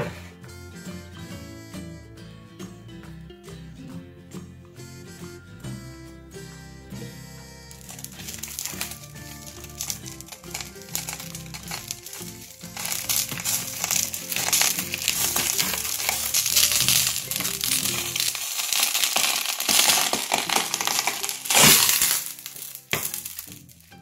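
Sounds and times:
background music: 0:00.0 - 0:24.0
crackling crinkling noise: 0:07.7 - 0:24.0.

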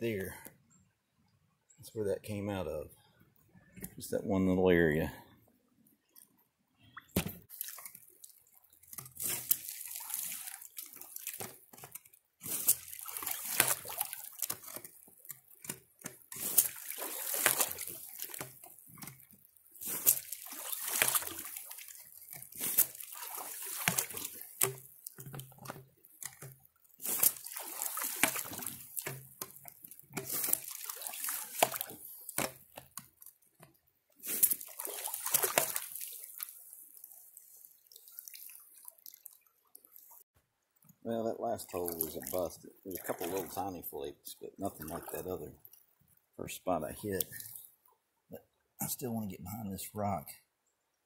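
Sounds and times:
water surging and sloshing: 0:07.2 - 0:40.3, 0:41.1 - 0:47.7.

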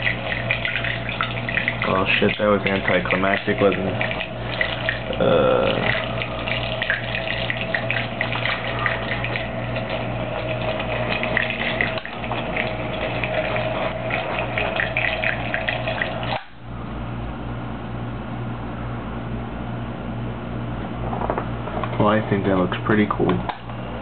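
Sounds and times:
churning swirling water: 0:00.0 - 0:16.5
electric motor hum and whine: 0:00.0 - 0:24.0.

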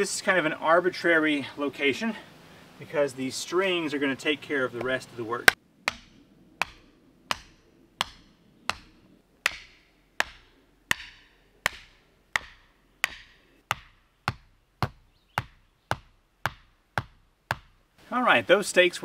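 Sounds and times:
sledgehammer driving wooden stakes: 0:04.8 - 0:17.8.

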